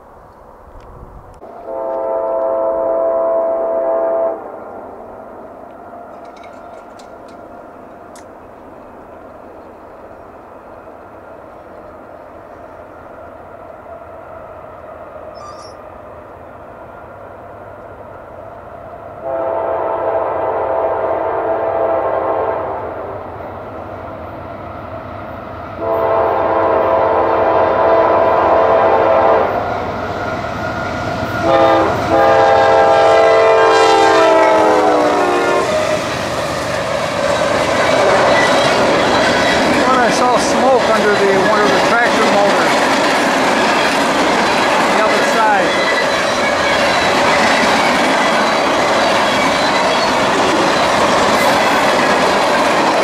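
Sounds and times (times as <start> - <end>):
train rumble: 0.0 - 53.0
locomotive air horn: 1.4 - 5.0, 19.2 - 23.2, 25.8 - 29.6, 31.4 - 35.8.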